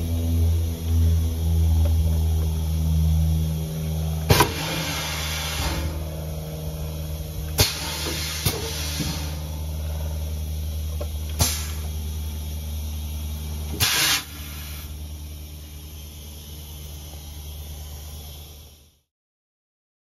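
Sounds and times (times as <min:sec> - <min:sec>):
machine hum: 0:00.0 - 0:19.1
compressed air hiss: 0:04.3 - 0:06.1, 0:07.6 - 0:10.4, 0:11.3 - 0:12.2, 0:13.7 - 0:15.1.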